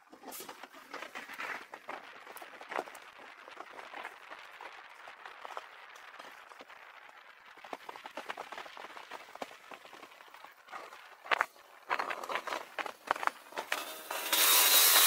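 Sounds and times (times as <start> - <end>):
bicycle tyres hissing: 0.2 - 15.0
bicycle clicks and rattles: 7.6 - 15.0.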